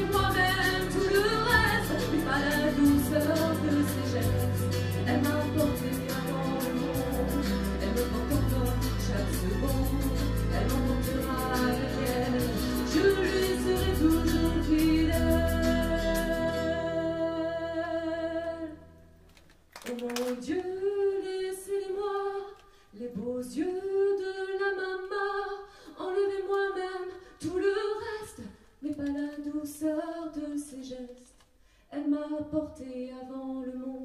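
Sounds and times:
woman singing into microphone: 0.0 - 18.9, 19.9 - 31.3, 31.9 - 34.0
singer breathing: 22.6 - 23.0, 25.6 - 26.0, 31.6 - 31.9.

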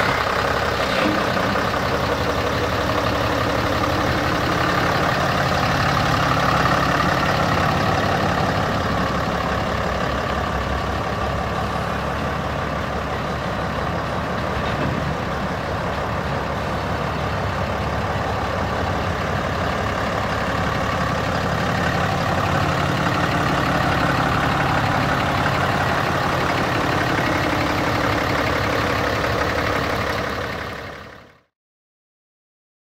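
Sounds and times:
diesel engine idling: 0.0 - 31.5.

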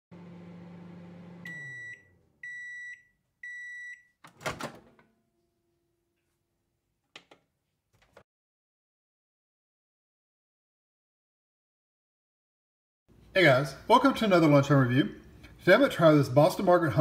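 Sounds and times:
microwave running hum: 0.1 - 3.8
microwave beeps: 1.1 - 4.2.

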